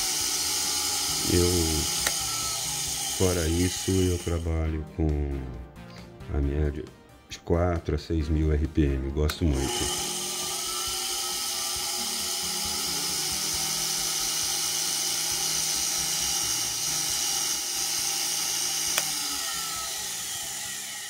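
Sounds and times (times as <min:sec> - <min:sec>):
lathe motor whining: 0:00.0 - 0:04.5, 0:09.5 - 0:21.0.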